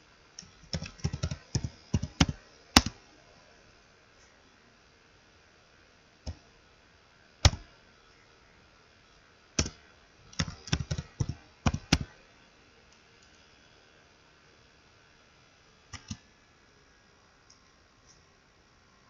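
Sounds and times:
computer keyboard typing: 0.4 - 3.0, 9.6 - 12.1, 15.9 - 16.2.

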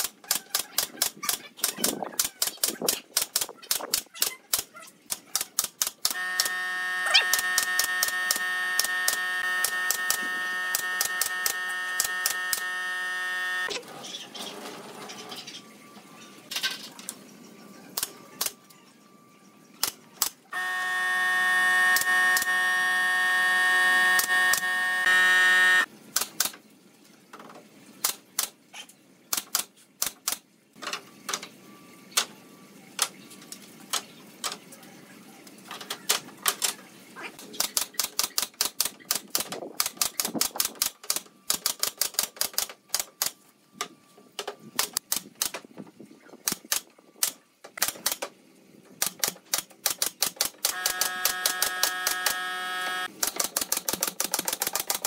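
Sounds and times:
mechanical hum: 0.0 - 29.9, 30.5 - 37.7, 50.6 - 55.0.

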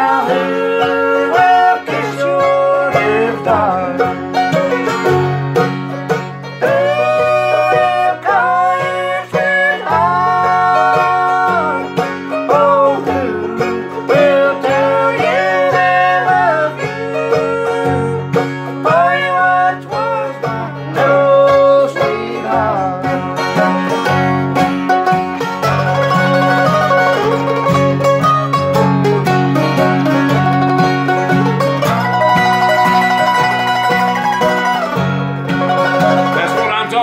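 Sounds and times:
acoustic guitar strumming: 0.0 - 37.0
mandolin picking: 0.0 - 37.0.

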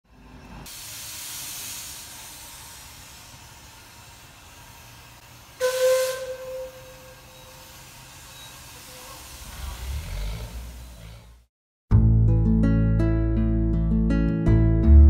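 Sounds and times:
steam locomotive hissing steam: 0.2 - 11.5
steam whistle blowing: 5.6 - 9.0.

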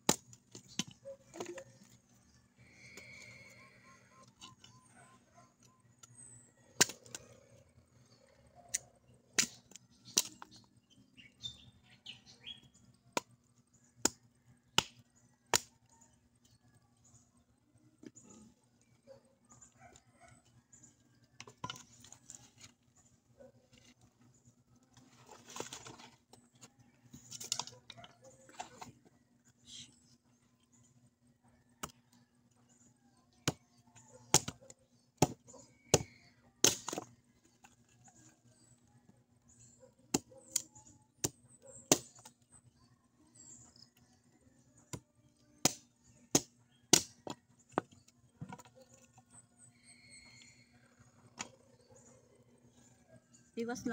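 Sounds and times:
wood chopping strikes: 0.0 - 1.6, 34.3 - 34.6, 35.2 - 37.1, 41.2 - 42.4, 45.6 - 47.9.

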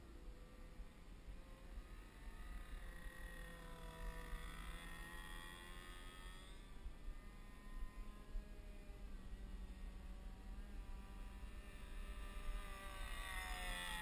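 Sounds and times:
distant model plane engine buzz: 0.0 - 14.0.

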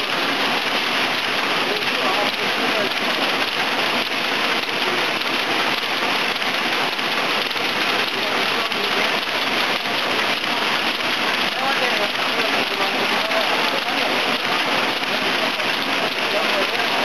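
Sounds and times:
machine rapid mechanical clicks: 0.0 - 17.0.

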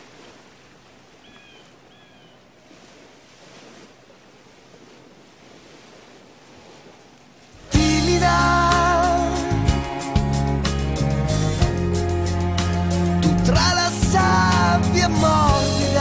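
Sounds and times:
sea surf washing on beach: 0.0 - 1.9, 2.6 - 10.2.

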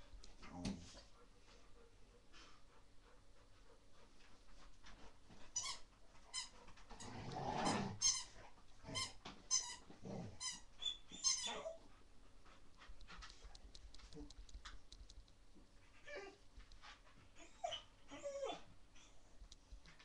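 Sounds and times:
faint clicks and movement: 0.0 - 10.1, 11.8 - 20.0
growly scuffling: 3.4 - 9.3.

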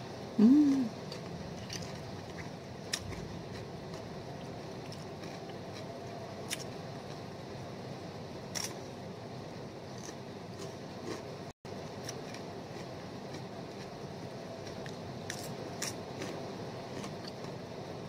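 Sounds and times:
person humming: 0.4 - 0.9
crunching of chewing cucumber: 0.7 - 6.7, 8.5 - 8.8, 9.9 - 11.3, 14.6 - 17.6.

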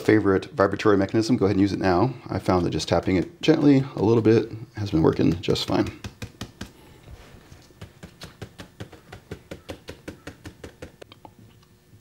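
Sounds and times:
rapid tapping on plastic molds: 2.4 - 4.1, 4.8 - 6.8, 7.6 - 11.1.

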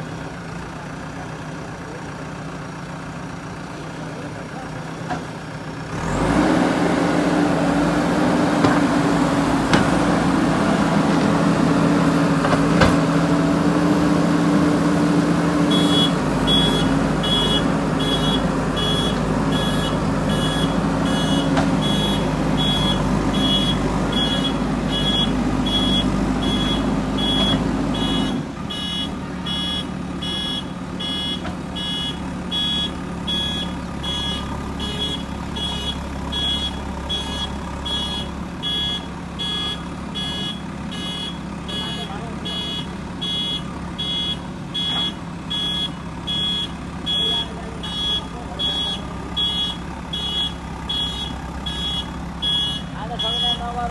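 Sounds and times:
diesel engine running: 0.0 - 53.9
reversing alarm beeping: 15.7 - 53.7.

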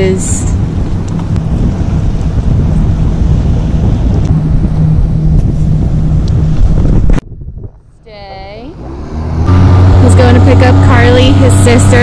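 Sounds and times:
steady low hum: 0.0 - 12.0
wind buffeting microphone: 0.0 - 12.0.

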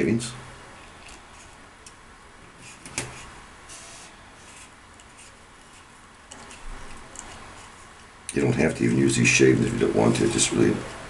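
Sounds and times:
hands scraping and rustling: 2.6 - 8.1.

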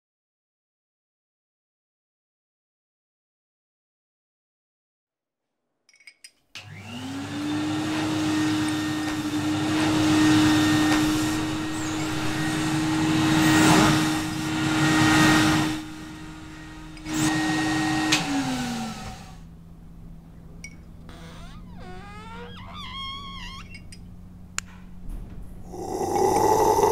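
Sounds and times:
electric motor humming: 6.6 - 19.5, 25.7 - 26.9
rush of air: 25.7 - 26.9.

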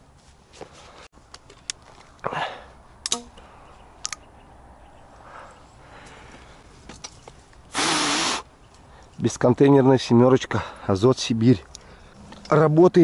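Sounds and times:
shotgun metallic clicks: 3.0 - 3.4, 4.0 - 4.3.

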